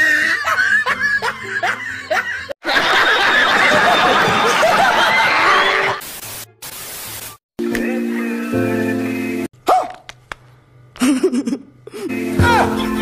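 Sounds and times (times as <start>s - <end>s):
crowd laughing: 0.0s - 6.0s, 12.4s - 13.0s.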